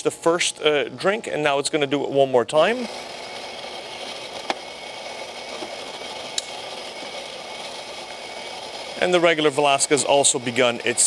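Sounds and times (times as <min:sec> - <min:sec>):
espresso machine whirring: 0:00.0 - 0:11.0.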